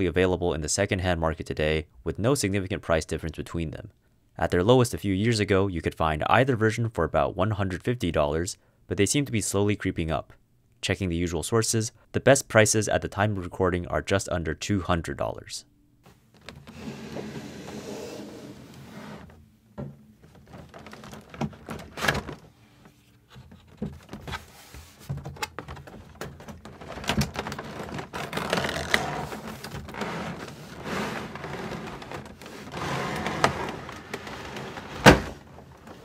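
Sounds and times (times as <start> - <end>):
cardboard rustling: 20.2 - 36.0.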